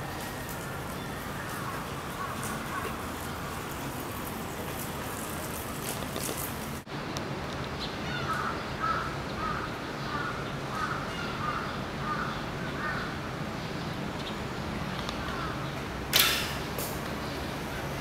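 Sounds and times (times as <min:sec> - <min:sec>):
crow cawing: 0:08.1 - 0:13.1.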